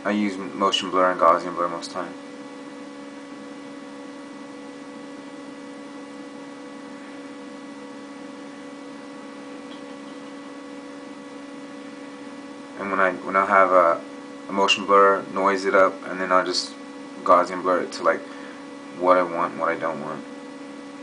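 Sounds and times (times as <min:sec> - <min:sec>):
electrical hum: 0:00.0 - 0:21.0.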